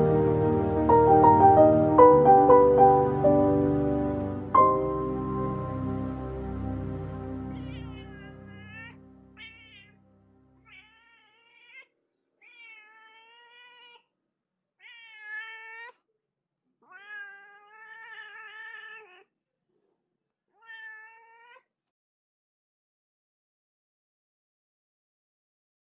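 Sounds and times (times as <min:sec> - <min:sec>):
background music: 0:00.0 - 0:09.4
cat meowing: 0:07.6 - 0:10.0, 0:10.6 - 0:14.1, 0:14.8 - 0:16.0, 0:16.8 - 0:19.3, 0:20.5 - 0:21.7.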